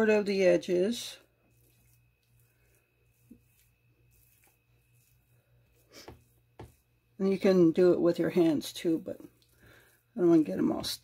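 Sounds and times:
spatula spreading dough on pan: 0:01.3 - 0:11.0.

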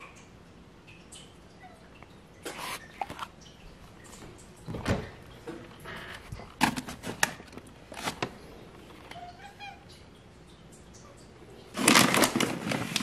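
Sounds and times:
foil bag crinkling: 0:02.5 - 0:03.3, 0:06.0 - 0:09.2, 0:11.7 - 0:13.0.

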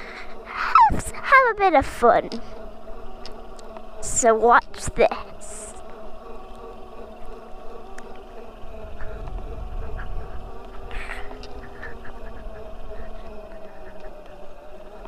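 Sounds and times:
electric motor whining: 0:00.0 - 0:15.0
wind rumble on microphone: 0:08.6 - 0:14.6.

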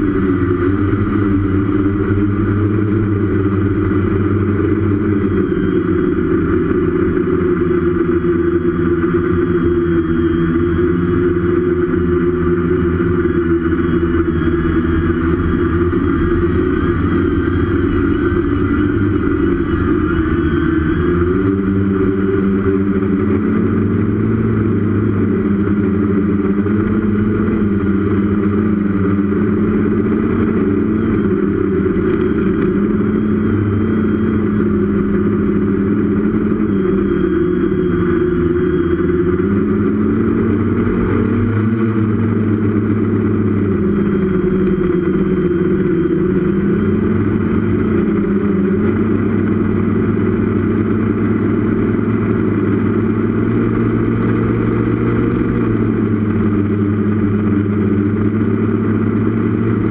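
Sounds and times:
quadcopter propellers whirring: 0:00.0 - 0:59.9.

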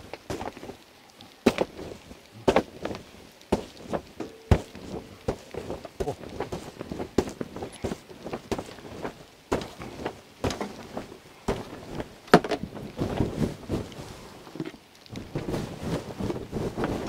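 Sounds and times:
footsteps crunching in snow: 0:01.4 - 0:14.3
knocks of poles and gear: 0:02.5 - 0:13.9.

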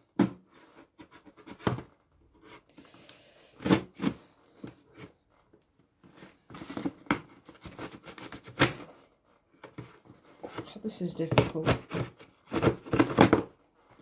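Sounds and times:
packing tape and cardboard tearing: 0:06.5 - 0:08.9, 0:09.7 - 0:14.0.

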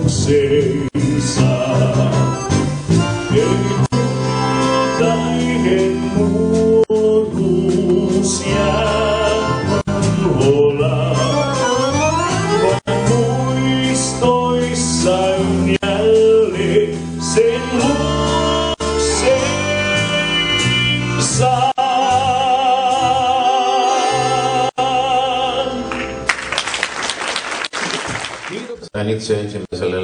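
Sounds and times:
live dance band playing: 0:01.0 - 0:14.7
clarinet melody: 0:01.6 - 0:06.9, 0:10.9 - 0:13.8
audience applause: 0:25.9 - 0:28.9.

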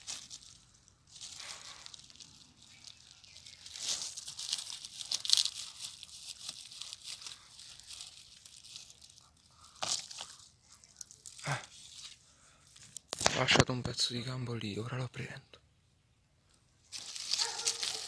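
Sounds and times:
dry leaves crackling and rustling: 0:00.0 - 0:12.2, 0:16.9 - 0:18.0.

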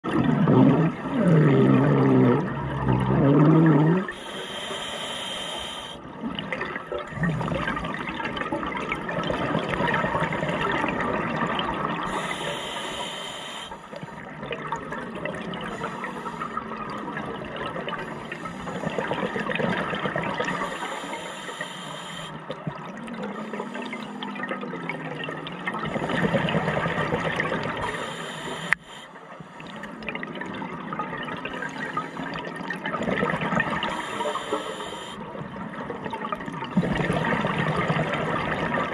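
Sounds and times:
underwater bubbles gurgling: 0:00.0 - 0:38.9
regulator hiss: 0:04.2 - 0:06.0, 0:12.1 - 0:13.9, 0:20.5 - 0:22.4, 0:27.8 - 0:29.1, 0:33.9 - 0:35.2.

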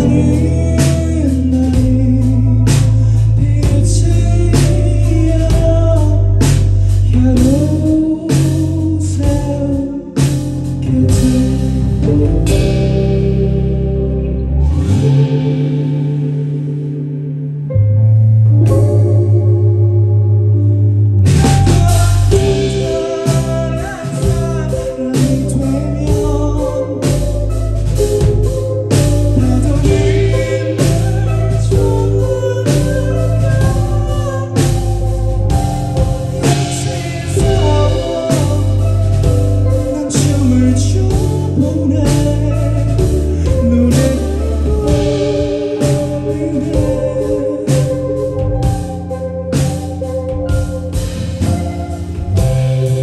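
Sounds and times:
man singing: 0:00.0 - 0:14.2, 0:21.4 - 0:48.8
live band playing slow song: 0:00.0 - 0:53.0
steady bass: 0:00.0 - 0:53.0
sustained keyboard chords: 0:00.0 - 0:53.0
drum crashes: 0:21.2 - 0:53.0.

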